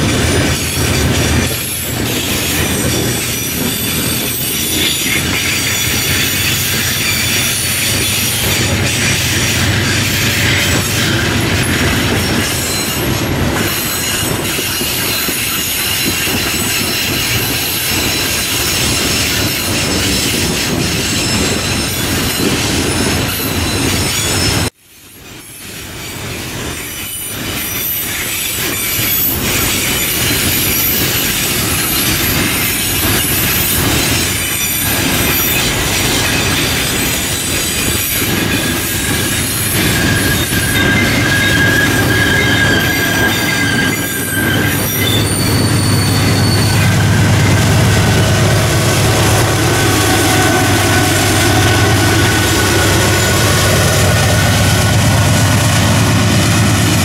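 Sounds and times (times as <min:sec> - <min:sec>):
locomotive engine rumble: 0:00.0 - 0:14.5, 0:32.4 - 0:57.0
train wheels clattering on rails: 0:00.0 - 0:57.0.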